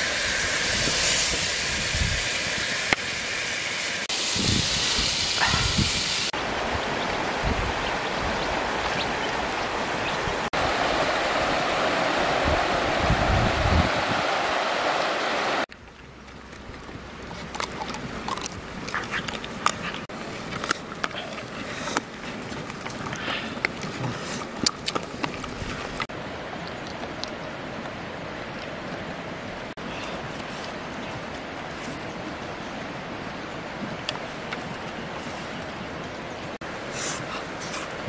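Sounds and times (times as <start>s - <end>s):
stream water rushing: 0.0s - 4.6s, 5.3s - 38.0s
dogs chewing fish scraps: 16.2s - 26.1s.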